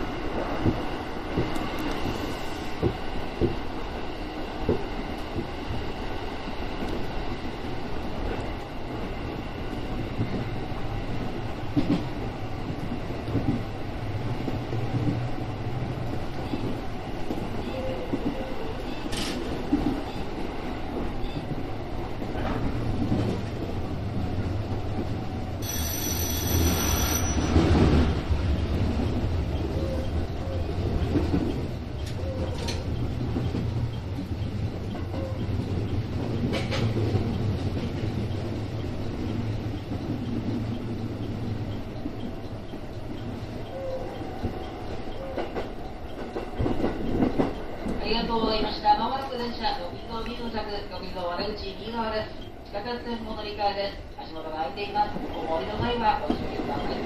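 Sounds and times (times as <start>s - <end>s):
heavy train rumble: 0.0s - 57.0s
train motors and wheels humming: 0.0s - 57.0s
high steady tone: 25.6s - 27.9s.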